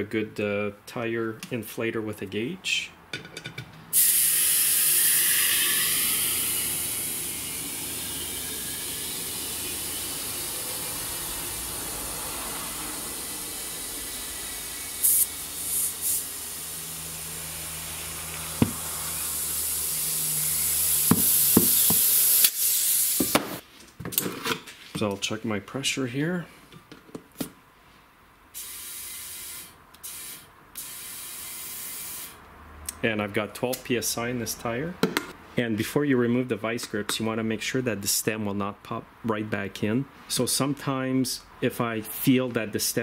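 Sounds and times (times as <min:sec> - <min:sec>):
compressed air hissing: 0:03.9 - 0:23.6, 0:28.6 - 0:32.4.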